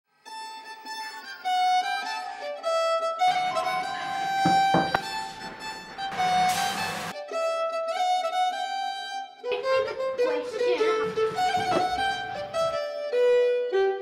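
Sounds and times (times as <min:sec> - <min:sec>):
violin-led background music: 0:00.1 - 0:14.0
sharp kitchen knocks: 0:04.4 - 0:05.6.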